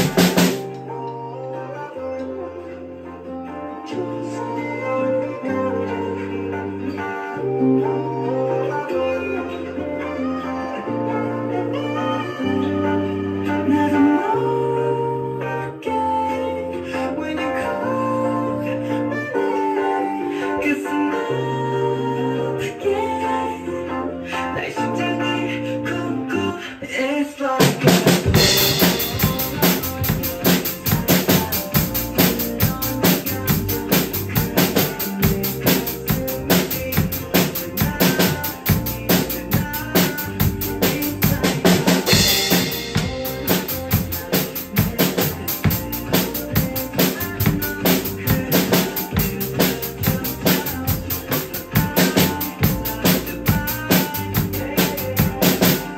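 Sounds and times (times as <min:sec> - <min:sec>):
drum kit playing pop groove: 0:00.0 - 0:00.9, 0:27.6 - 0:55.9
pop song with vocals: 0:00.0 - 0:55.9.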